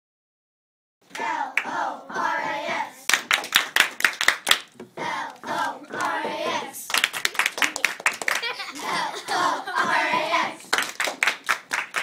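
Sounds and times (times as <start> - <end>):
hand claps: 3.1 - 12.0
children's voices: 5.0 - 10.8.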